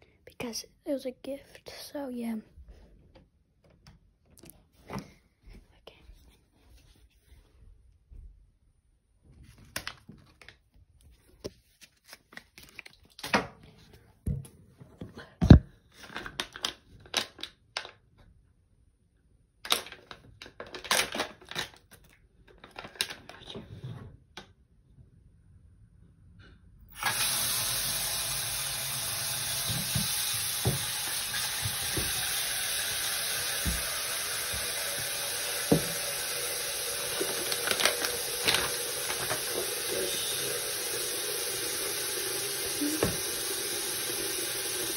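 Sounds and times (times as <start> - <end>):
tap running into sink: 27.0 - 44.9.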